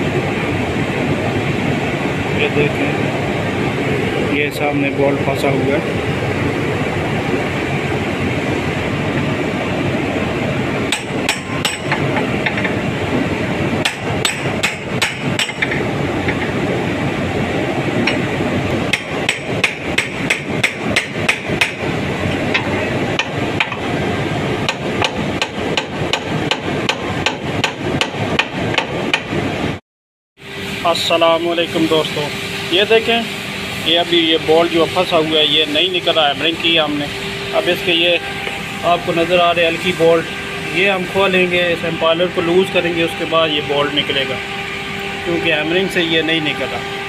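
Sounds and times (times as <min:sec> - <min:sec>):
steady machine drone: 0:00.0 - 0:29.8, 0:30.4 - 0:47.0
hammer striking metal: 0:10.9 - 0:12.8, 0:13.8 - 0:16.5, 0:18.0 - 0:18.3, 0:18.9 - 0:21.8, 0:22.4 - 0:23.9, 0:24.6 - 0:29.3.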